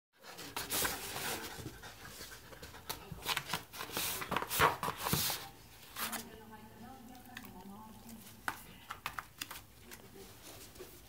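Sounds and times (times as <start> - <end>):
dog claws scratching floor mats: 0.2 - 6.3, 8.4 - 11.0.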